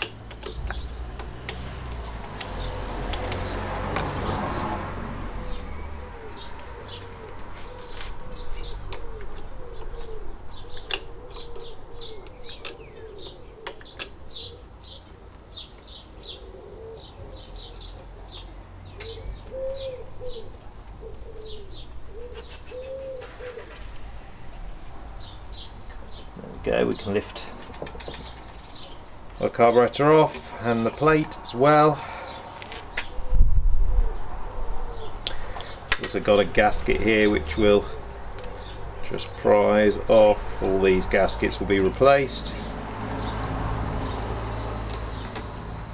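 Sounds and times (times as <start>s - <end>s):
small birds chirping: 0.0s - 45.9s
pigeon cooing: 5.3s - 15.3s, 16.2s - 18.2s, 19.0s - 24.4s, 32.0s - 35.9s, 37.5s - 39.4s.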